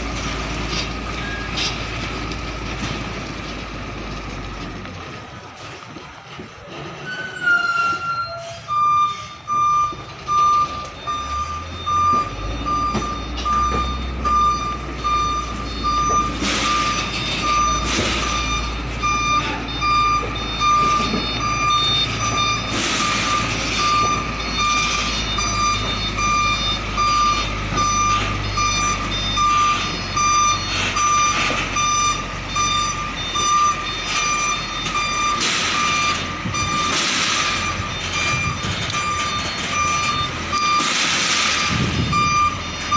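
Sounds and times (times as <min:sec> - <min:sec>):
truck reversing alarm beeping: 0:00.0 - 0:04.4, 0:07.0 - 0:42.9
truck engine running: 0:00.0 - 0:07.0.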